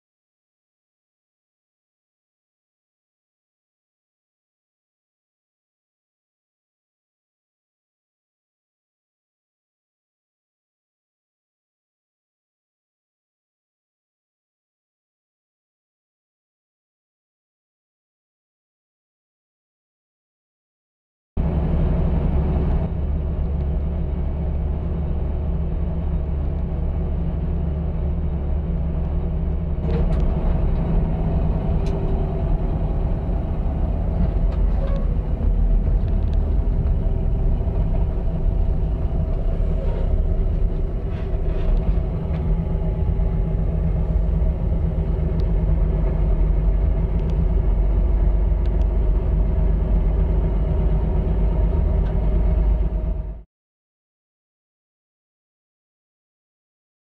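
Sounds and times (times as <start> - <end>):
truck engine and road noise: 21.4 - 53.4.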